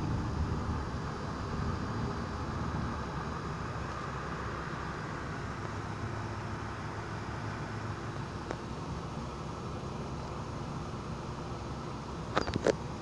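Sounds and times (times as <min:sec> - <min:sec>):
low thunder rumble: 0:00.0 - 0:03.8.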